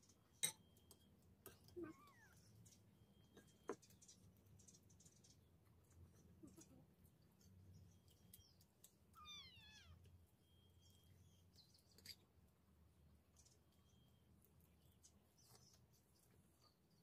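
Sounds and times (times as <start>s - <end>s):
cat meowing: 1.8s - 2.4s, 9.2s - 10.1s.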